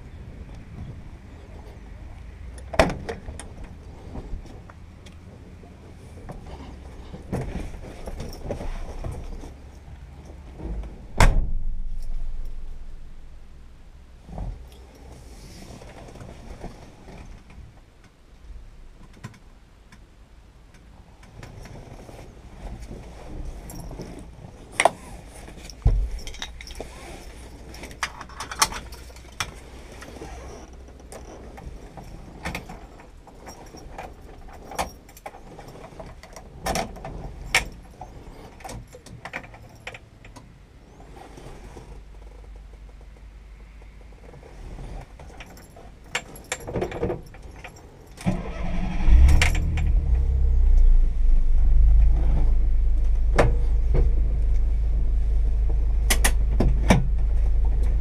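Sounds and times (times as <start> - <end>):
steady low hum: 3.2 - 19.0, 48.4 - 58.0
keys jangling: 25.6 - 29.4
sharp clicks and knocks: 55.6 - 58.0.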